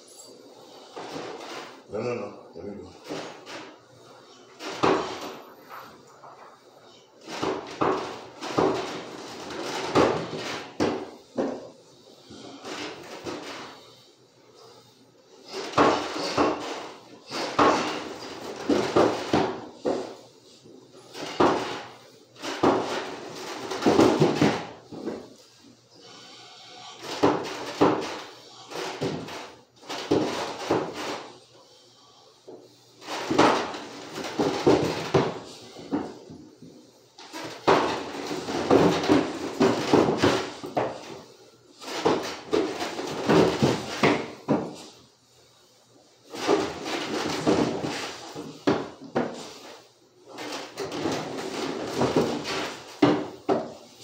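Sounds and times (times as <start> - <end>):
heavy footsteps on stairs: 4.5 - 6.6, 7.2 - 11.7, 15.5 - 20.3, 21.1 - 25.4, 26.0 - 31.3, 32.5 - 45.0, 46.3 - 49.6, 50.3 - 54.0.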